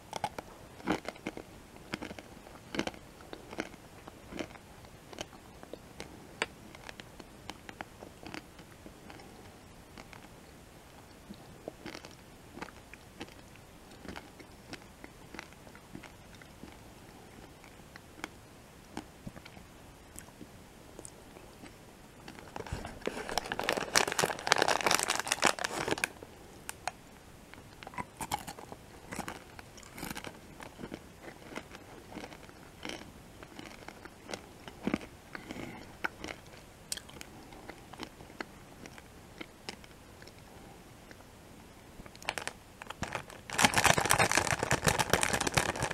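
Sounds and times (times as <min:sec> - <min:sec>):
candy crunching: 0:00.0 - 0:05.4, 0:06.0 - 0:08.5, 0:11.7 - 0:16.8, 0:21.0 - 0:27.0, 0:27.6 - 0:40.4, 0:42.1 - 0:45.9.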